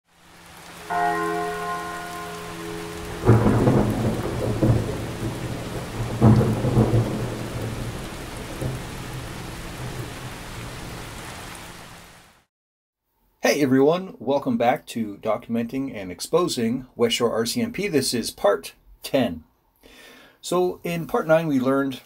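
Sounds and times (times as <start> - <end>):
steady rain: 0.1 - 12.5
held musical chord: 0.7 - 5.8
thunder claps rumbling: 0.9 - 11.3.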